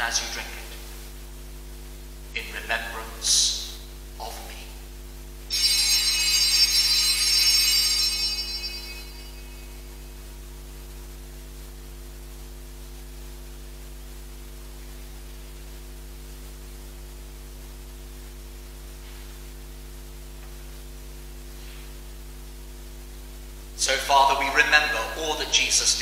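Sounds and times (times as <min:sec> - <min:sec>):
electrical mains hum: 0:00.0 - 0:26.0
bell ringing: 0:05.5 - 0:10.0.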